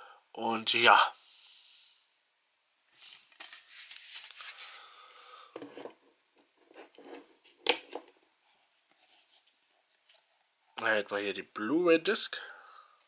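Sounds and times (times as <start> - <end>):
metal case rubbing and scraping: 6.6 - 7.5.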